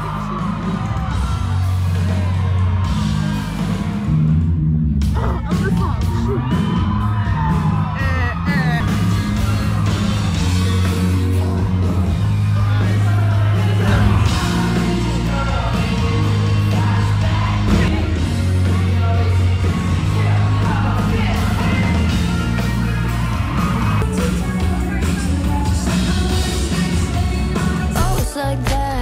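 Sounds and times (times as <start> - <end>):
low bass line: 0.0 - 29.0
rock band playing: 0.0 - 29.0
person singing: 10.5 - 29.0.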